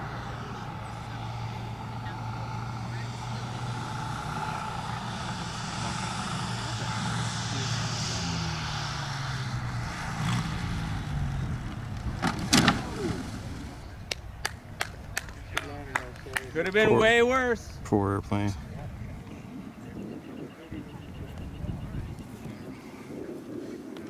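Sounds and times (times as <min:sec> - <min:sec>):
model plane engine running: 0:00.0 - 0:14.0
loud knocks of plane crashing: 0:12.1 - 0:13.4.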